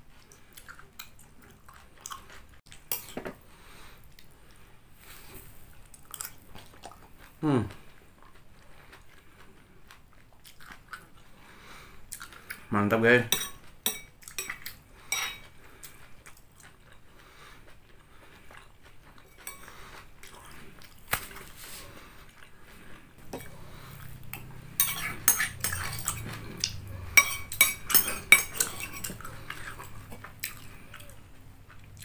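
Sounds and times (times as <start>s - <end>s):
metal spoon clinking on ceramic bowl: 13.3s - 14.5s, 24.8s - 26.1s, 27.1s - 29.2s.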